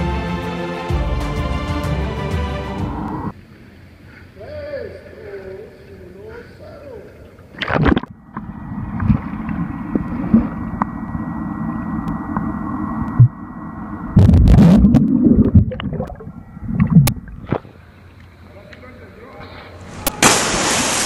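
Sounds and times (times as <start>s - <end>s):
water bubbling and churning: 7.2s - 18.5s, 19.7s - 21.0s
person splashing into pool: 19.9s - 21.0s.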